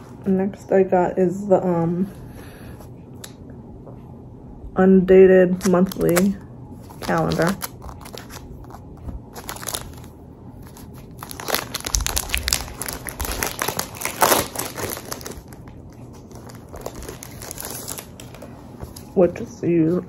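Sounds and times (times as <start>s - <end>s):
shrink wrap crinkling: 5.6s - 20.0s.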